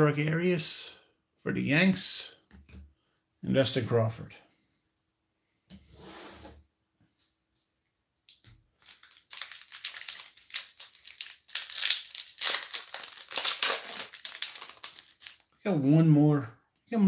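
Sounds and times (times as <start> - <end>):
card pack wrapper crinkling: 8.3 - 15.6.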